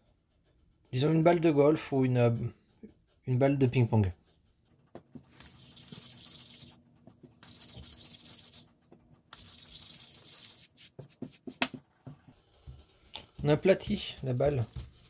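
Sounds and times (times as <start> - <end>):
palms rolling dough: 0.0 - 15.0.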